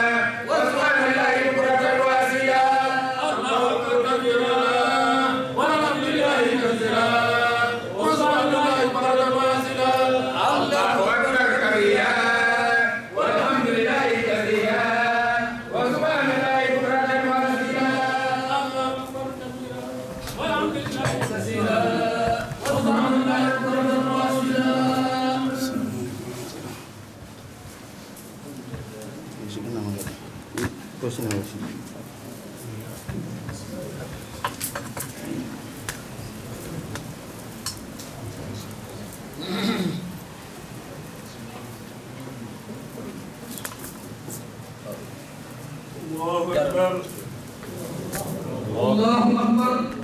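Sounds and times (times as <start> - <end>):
voices chanting long notes: 0.0 - 26.4.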